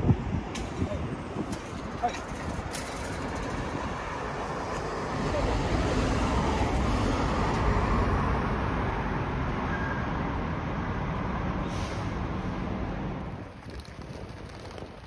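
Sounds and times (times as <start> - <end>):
heavy trucks driving past: 2.4 - 13.4.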